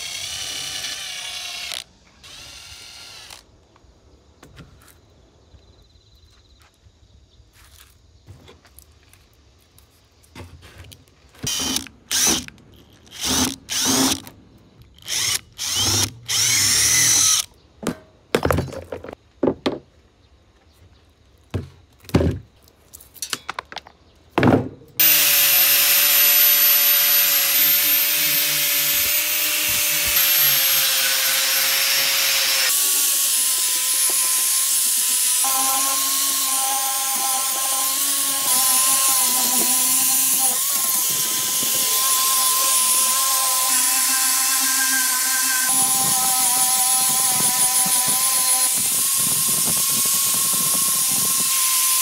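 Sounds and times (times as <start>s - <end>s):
angle grinder on metal: 0.0s - 3.4s, 11.4s - 14.3s, 15.0s - 17.5s, 25.0s - 52.0s.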